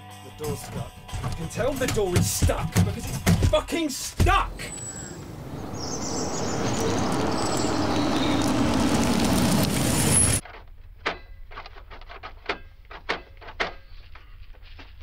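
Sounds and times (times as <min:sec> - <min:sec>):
road noise: 0:04.1 - 0:10.4
sports car engine driving: 0:04.5 - 0:10.4.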